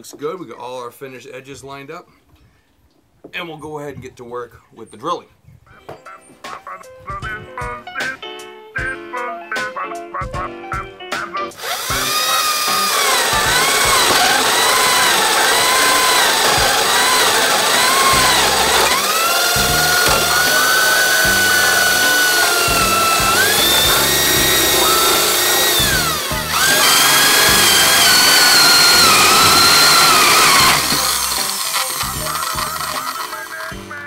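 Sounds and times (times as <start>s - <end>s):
power drill boring through wood: 11.6s - 34.0s.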